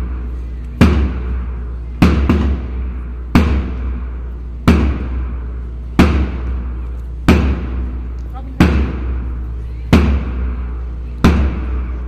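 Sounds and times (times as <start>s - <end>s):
bass drum struck with mallet: 0.8s - 12.0s.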